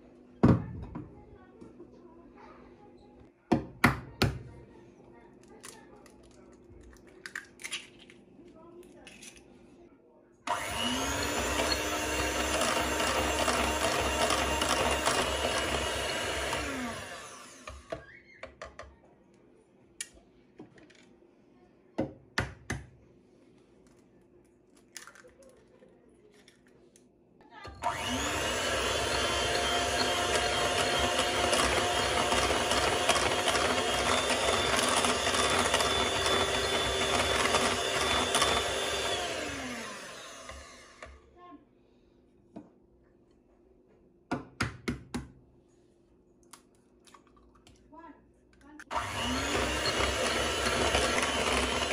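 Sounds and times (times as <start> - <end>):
kitchen appliance motor running: 10.5 - 18.0, 27.8 - 41.2, 48.9 - 51.9.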